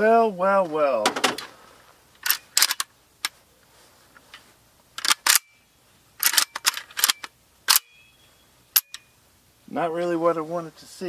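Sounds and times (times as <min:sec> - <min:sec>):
gun action clicks and clacks: 0:02.2 - 0:02.9, 0:06.2 - 0:07.9.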